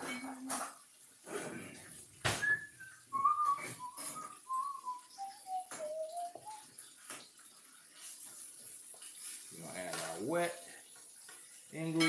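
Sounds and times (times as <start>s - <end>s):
person whistling a slow tune: 2.4s - 6.6s.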